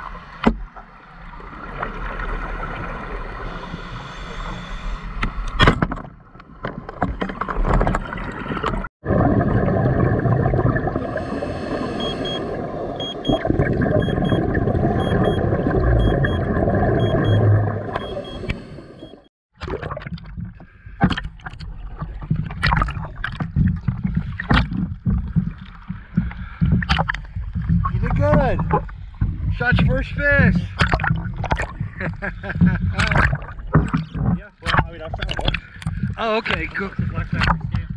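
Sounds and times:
water splashes and clicks: 0.3 - 3.2, 5.2 - 11.0, 19.5 - 37.9
underwater exhaled bubbles gurgling: 7.9 - 18.9, 30.7 - 36.2
short high beeps: 13.0 - 13.4, 14.0 - 14.4, 15.0 - 15.4, 17.0 - 17.4, 18.0 - 19.3.

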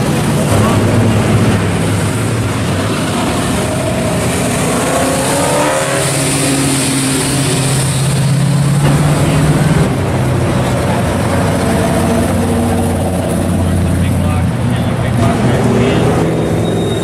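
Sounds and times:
car engine accelerating past: 0.4 - 14.1
classic car engine steady: 6.4 - 16.8.

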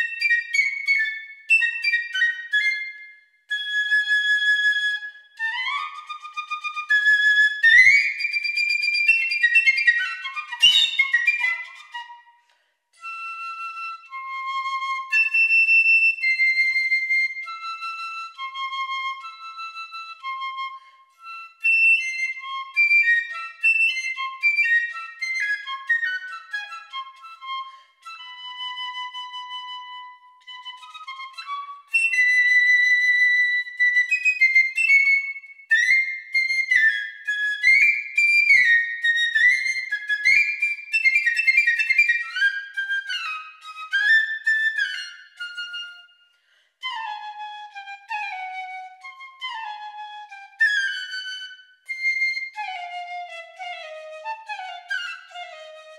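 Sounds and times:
piccolo melody: 0.0 - 55.9.

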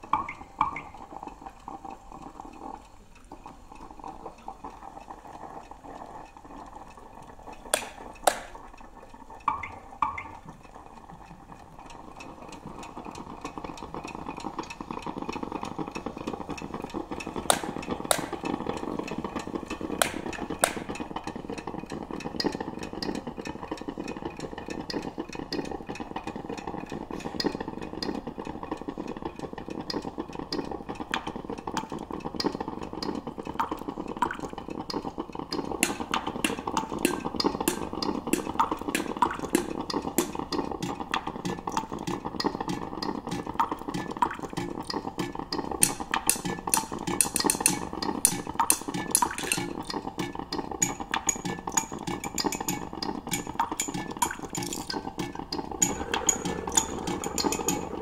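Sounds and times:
spoon clinking in a glass carafe: 47.2 - 49.7, 50.8 - 55.0, 55.8 - 58.0
low rushing noise: 55.8 - 58.0.

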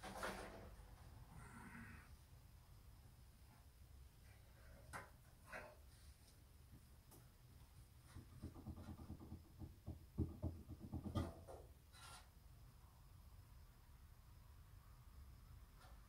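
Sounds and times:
short scrape on metal: 11.9 - 12.3.

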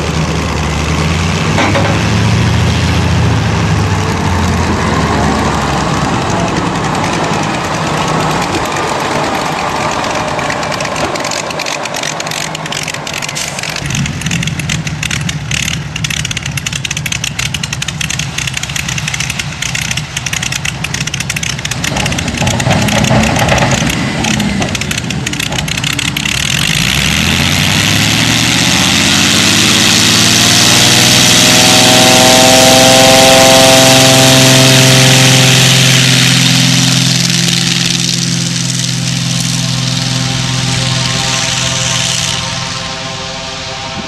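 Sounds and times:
plane engine and propeller: 0.0 - 44.0.

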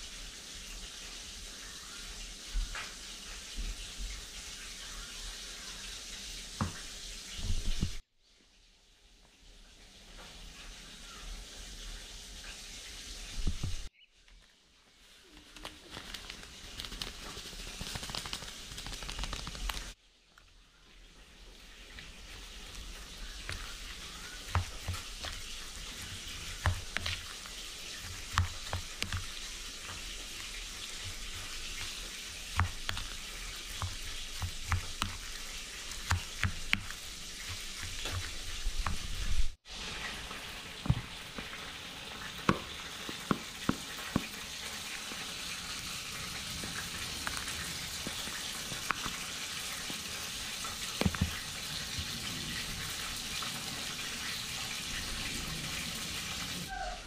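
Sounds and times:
food sizzling in hot oil: 0.0 - 8.0, 21.8 - 56.7.

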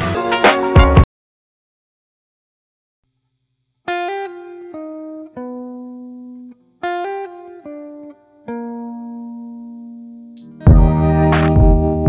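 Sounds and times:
slow plucked melody: 7.0 - 12.0.

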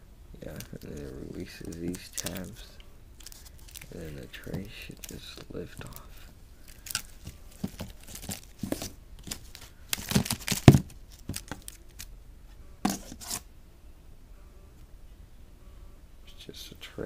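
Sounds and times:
plastic packaging crinkling: 0.5 - 12.1.

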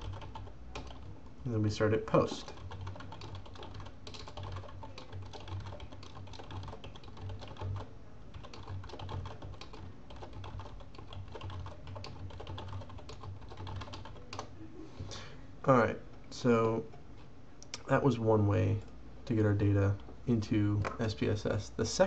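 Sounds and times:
typing on computer keyboard: 0.0 - 1.1, 2.1 - 14.5.

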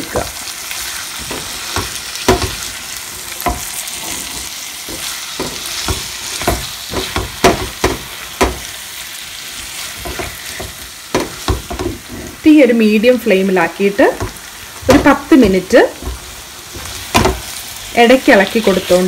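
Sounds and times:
food sizzling in a pan: 0.0 - 19.0
spatula scraping a pan: 0.7 - 8.8, 9.5 - 12.4.

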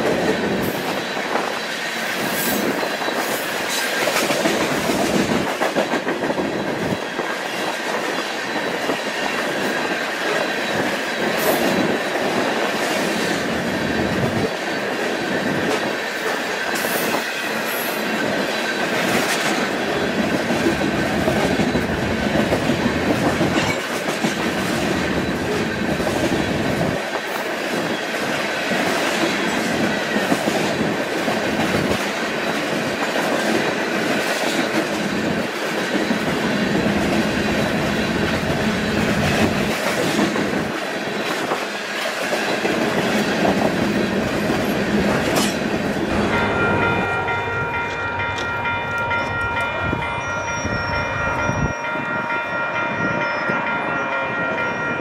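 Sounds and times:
train wheels clattering over rail: 0.0 - 47.0
wheel squeal: 50.1 - 52.0.

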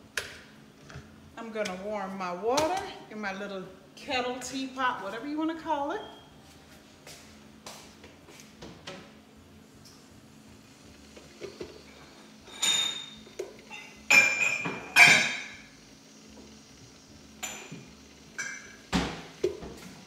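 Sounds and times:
steady low hum: 0.0 - 20.0
kitchenware clinking: 12.5 - 15.7, 18.4 - 18.8.

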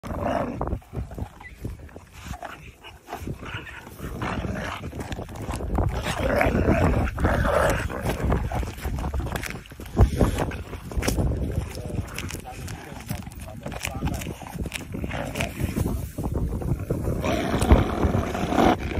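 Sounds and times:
wolves growling and snarling: 0.0 - 18.9
meat tearing and chewing: 0.6 - 15.8.

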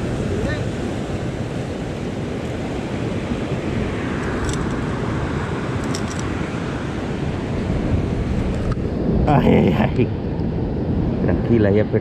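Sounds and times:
surf washing over rocks: 0.0 - 12.0
wind buffeting microphone: 0.0 - 12.0.

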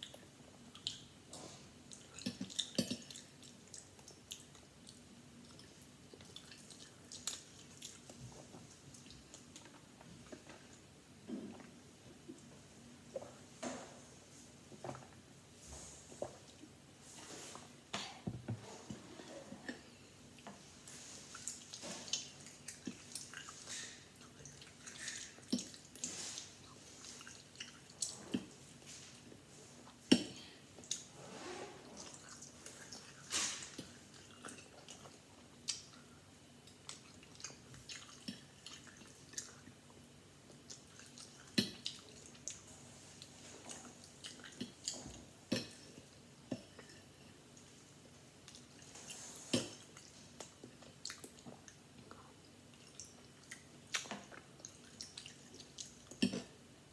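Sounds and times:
wet chewing mouth sounds: 36.7 - 39.9, 40.5 - 47.1.

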